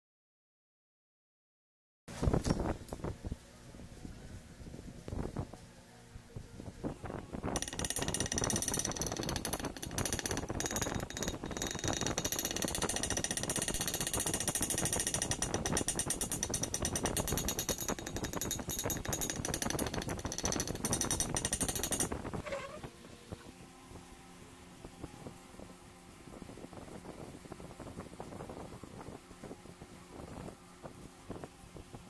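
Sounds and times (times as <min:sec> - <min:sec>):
air hammer rattling on metal: 0:07.6 - 0:22.8.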